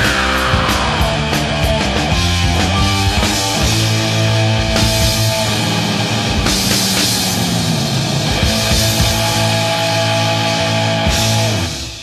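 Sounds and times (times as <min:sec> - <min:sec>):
drum hits: 0:00.0 - 0:07.6
bass guitar chords: 0:00.0 - 0:12.0
distorted electric guitars: 0:00.0 - 0:12.0.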